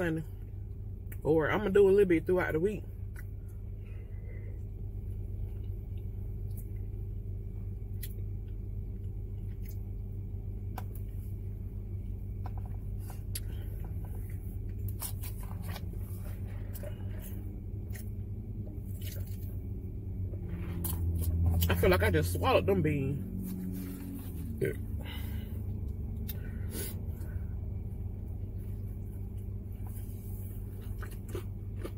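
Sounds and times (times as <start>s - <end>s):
car idling: 0.0s - 31.9s.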